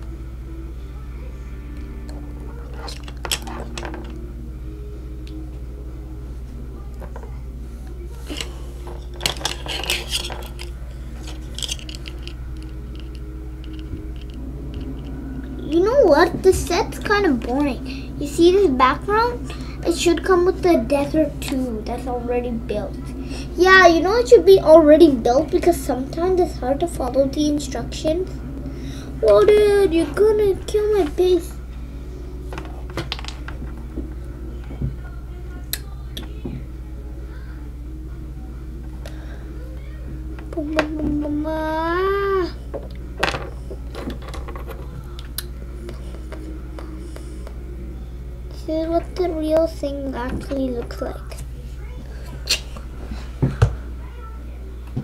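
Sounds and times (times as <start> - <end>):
plastic toy pieces knocking: 9.2 - 13.1
plastic toy pieces clicking: 11.3 - 14.4.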